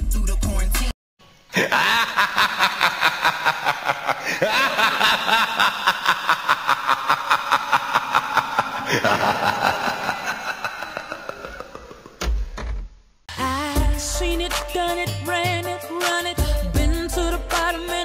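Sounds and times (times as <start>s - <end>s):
rapid laughter: 1.6s - 12.2s.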